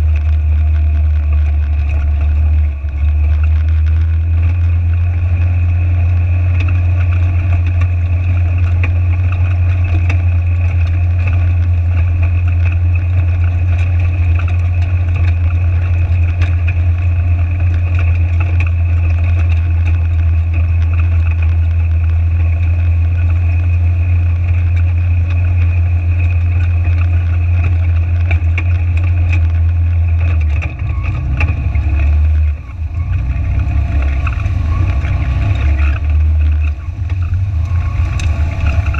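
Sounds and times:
utility vehicle engine droning: 0:00.0 - 0:38.9.

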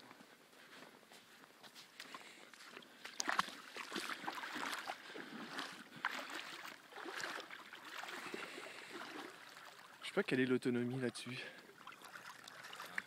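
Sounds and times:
sea water splashing at shoreline: 0:02.6 - 0:10.2, 0:11.0 - 0:13.0.

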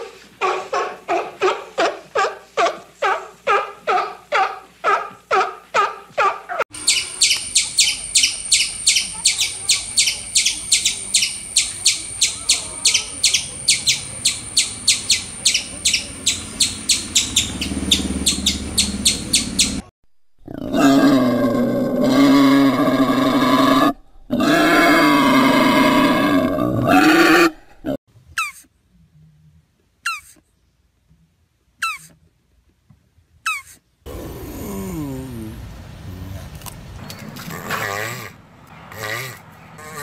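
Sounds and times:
squirrel chirping: 0:06.8 - 0:19.9
wild boar grunting: 0:20.4 - 0:28.0, 0:34.1 - 0:40.0.

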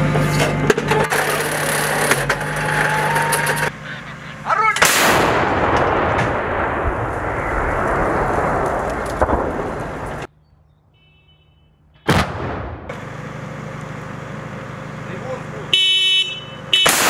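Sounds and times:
long rolling rumble: 0:00.0 - 0:10.3, 0:12.3 - 0:15.7
gun firing blast: 0:04.8 - 0:09.9, 0:12.0 - 0:12.9.

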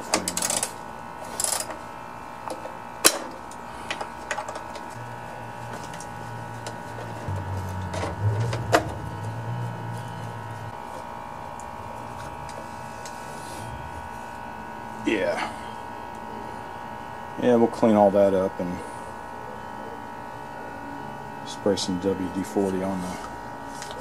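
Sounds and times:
low drone: 0:04.9 - 0:16.8.

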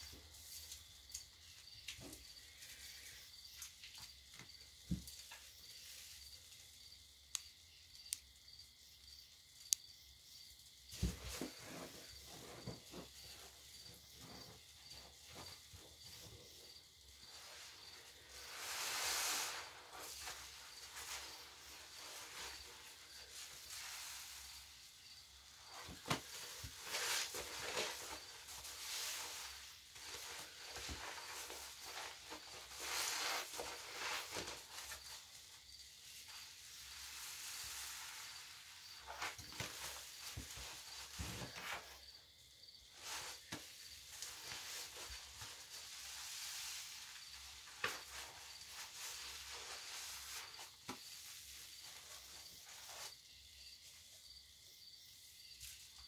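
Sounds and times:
sponge squelches: 0:11.0 - 0:42.1, 0:42.9 - 0:53.2
foam fizzing and crackling: 0:17.4 - 0:24.7.

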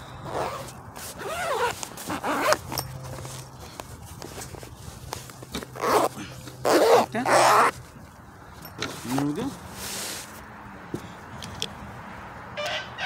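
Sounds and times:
zipper on fabric case: 0:00.2 - 0:03.5, 0:05.5 - 0:07.8
case ticking and rustling: 0:00.3 - 0:09.5.

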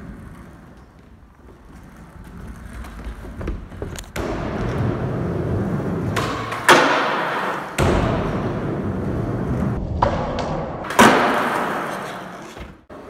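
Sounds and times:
skateboard wheels rolling: 0:00.0 - 0:10.0, 0:10.6 - 0:13.0.

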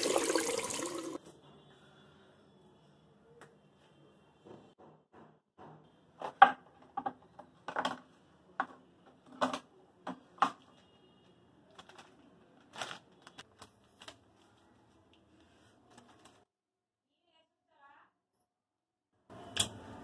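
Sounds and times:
plastic packet rustling: 0:11.7 - 0:14.7.

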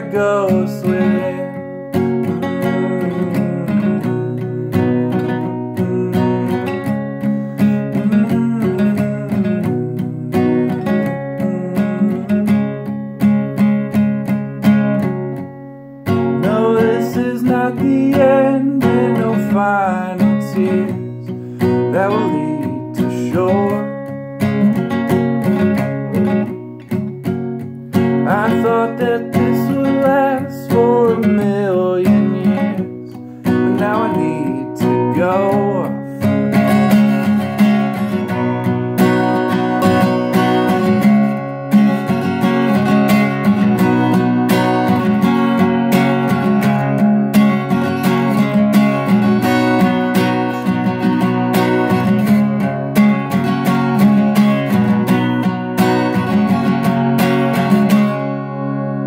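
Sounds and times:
wordless singing: 0:00.0 - 0:07.0, 0:16.4 - 0:24.0, 0:28.2 - 0:36.8
acoustic guitar strumming: 0:00.0 - 0:59.0.

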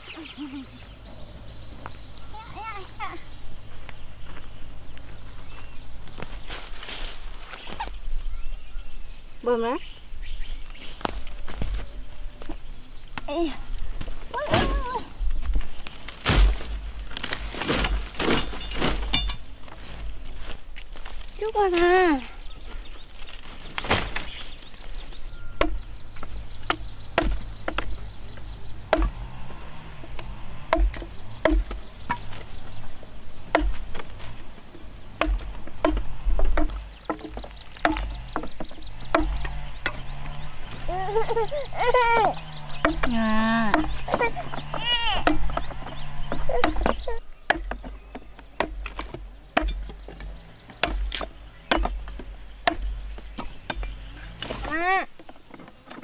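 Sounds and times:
machete chopping on wood: 0:16.1 - 0:19.5, 0:25.5 - 0:32.8, 0:33.4 - 0:41.0, 0:42.2 - 0:55.3.

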